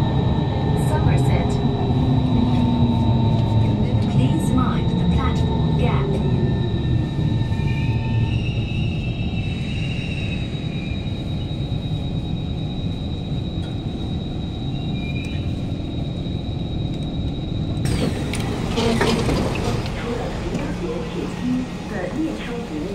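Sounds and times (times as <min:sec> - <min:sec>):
high whine: 0:00.0 - 0:22.9
low rumble of metro car: 0:00.0 - 0:22.9.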